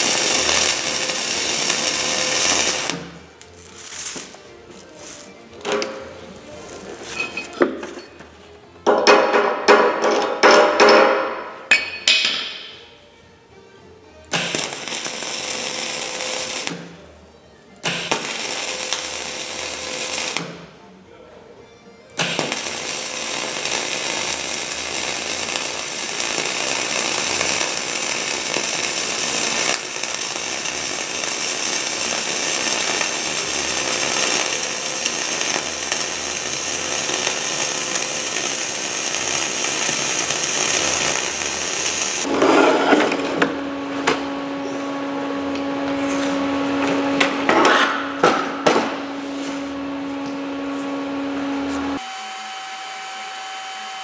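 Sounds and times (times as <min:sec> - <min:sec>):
welding arc crackling: 0:00.0 - 0:04.4, 0:14.3 - 0:17.0, 0:17.8 - 0:20.6, 0:22.2 - 0:42.4.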